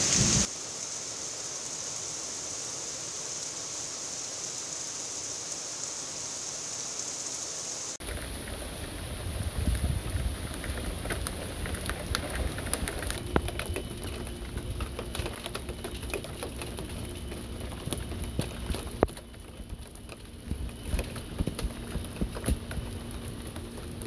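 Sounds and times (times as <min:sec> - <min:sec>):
heavy rain falling: 0:00.0 - 0:06.8, 0:07.8 - 0:24.0
close water drips and splats: 0:07.9 - 0:24.0.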